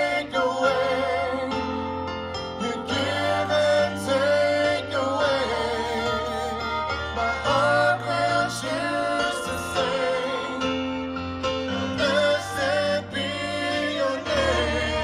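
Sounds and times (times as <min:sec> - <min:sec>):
worship band playing: 0:00.0 - 0:15.0.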